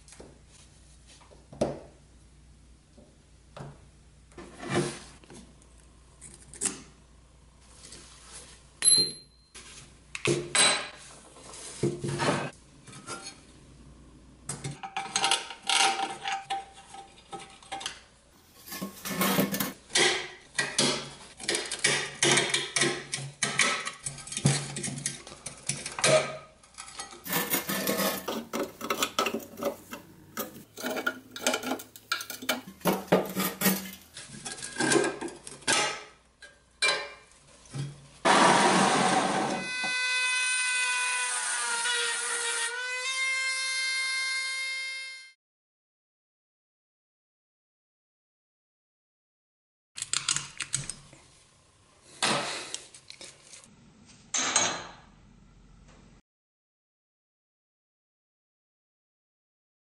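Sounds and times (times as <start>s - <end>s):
metal parts clinking and scraping: 26.7s - 35.0s.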